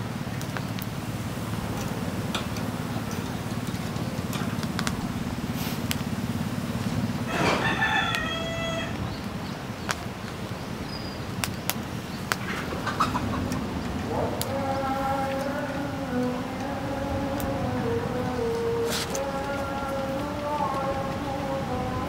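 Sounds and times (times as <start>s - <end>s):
low background rumble: 0.0s - 22.0s
rooster crowing: 7.2s - 9.1s.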